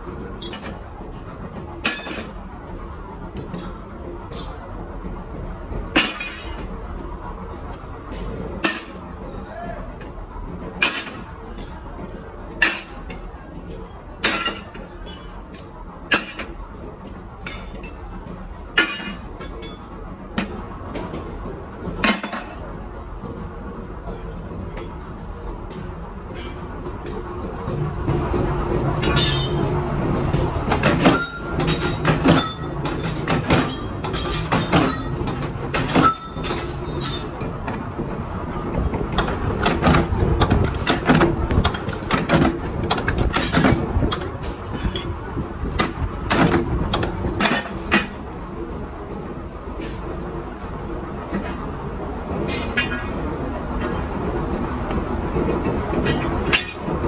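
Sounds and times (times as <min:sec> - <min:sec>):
low machine hum: 0:00.0 - 0:57.0.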